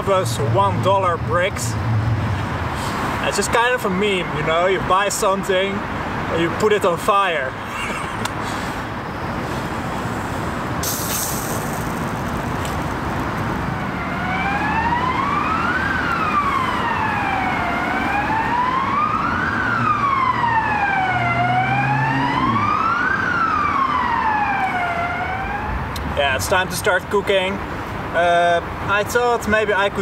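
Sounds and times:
city traffic noise: 0:00.0 - 0:30.0
siren wailing: 0:13.4 - 0:25.9.

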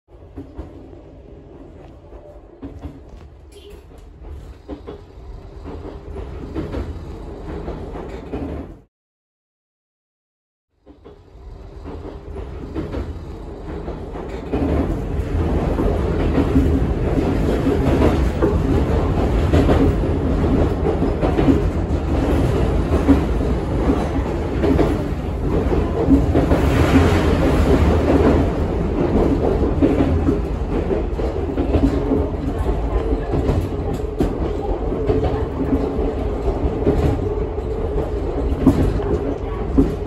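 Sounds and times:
train running rumble: 0:00.1 - 0:08.9, 0:10.8 - 0:40.0
knocks of train car: 0:38.5 - 0:40.0.

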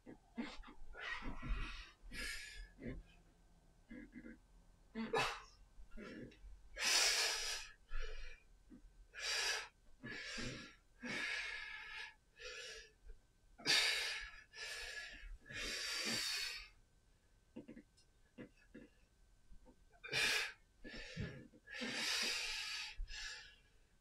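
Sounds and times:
man breathing hard: 0:20.1 - 0:23.6.

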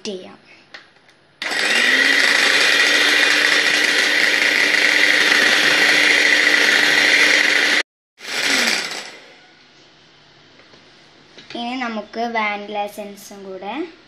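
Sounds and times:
electric hand mixer whine: 0:01.4 - 0:09.5.

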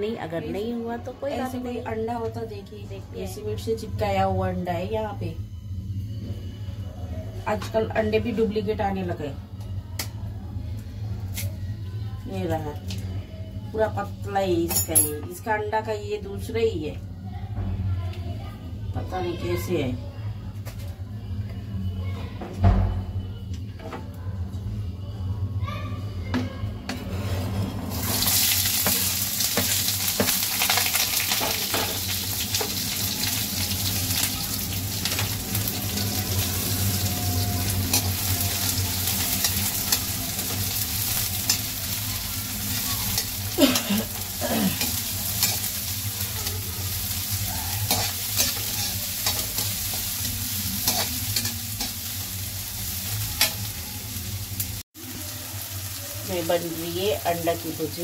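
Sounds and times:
onions sizzling in hot oil: 0:27.9 - 0:58.0.

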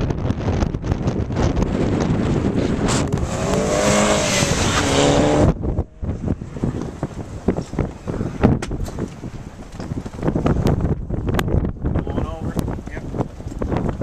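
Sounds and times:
wind buffeting microphone: 0:00.0 - 0:14.0
car engine running hard: 0:00.4 - 0:08.6.

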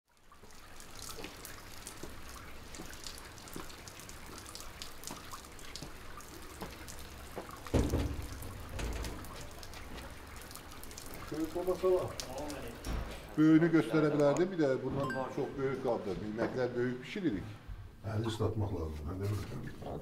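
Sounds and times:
rainwater dripping and trickling: 0:00.1 - 0:17.2
footsteps on wet cobblestones: 0:01.0 - 0:07.8, 0:09.0 - 0:12.8
thump on metal door: 0:07.7 - 0:09.3.

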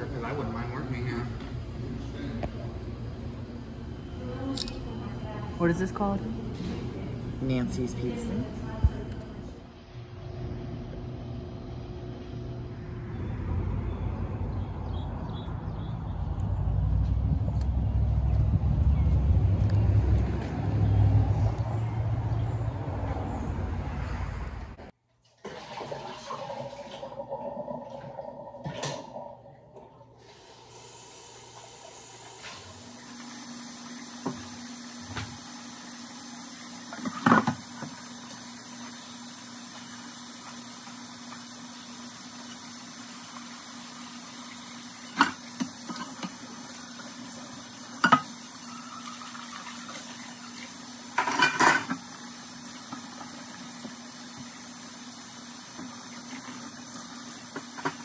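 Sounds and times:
dishes clinking against sink: 0:48.0 - 0:50.0, 0:51.1 - 0:52.1.

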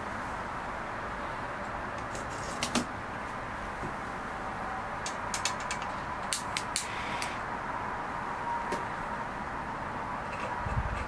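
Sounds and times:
steady background hiss: 0:00.0 - 0:10.2
small hard objects clicking: 0:05.0 - 0:07.3.

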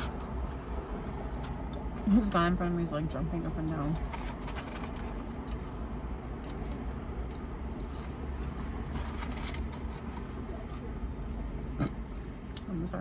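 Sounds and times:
paper carton rustling: 0:03.8 - 0:05.4, 0:08.9 - 0:10.9.

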